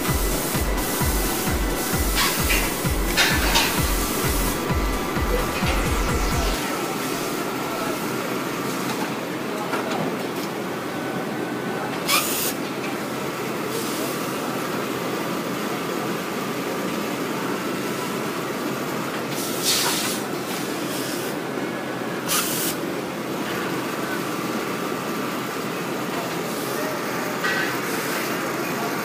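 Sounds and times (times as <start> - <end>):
sewing machine whirring: 0.0 - 8.5.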